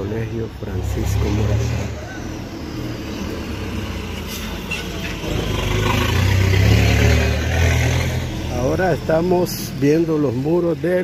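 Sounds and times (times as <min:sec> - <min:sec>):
vehicle engine and tyres rumbling: 0:00.0 - 0:11.0.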